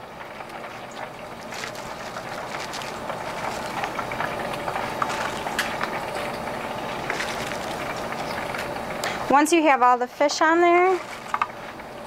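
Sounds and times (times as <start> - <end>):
frying oil crackling and bubbling: 0.0 - 12.0.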